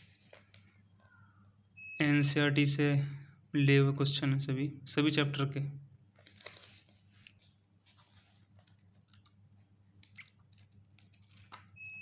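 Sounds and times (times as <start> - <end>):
paper pages being turned: 0.0 - 0.6, 6.1 - 11.8.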